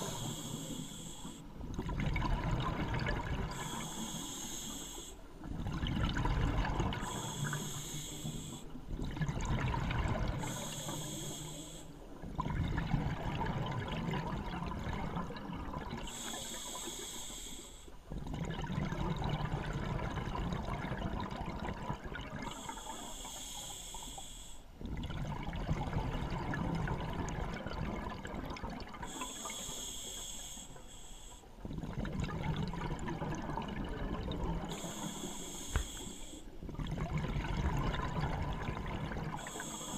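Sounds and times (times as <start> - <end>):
regulator hissing inhales: 0.0 - 1.4, 3.5 - 5.2, 7.0 - 8.6, 10.4 - 11.9, 16.1 - 17.9, 22.6 - 24.6, 29.1 - 31.5, 34.7 - 36.5, 39.4 - 39.9
exhaust bubbles bubbling: 1.8 - 3.7, 12.3 - 16.1, 18.2 - 22.4, 24.8 - 29.0, 31.6 - 34.9, 36.7 - 39.7.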